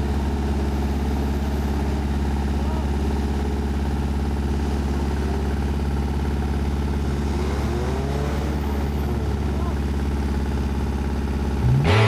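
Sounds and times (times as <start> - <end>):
jeep engine idling: 0.0 - 12.0.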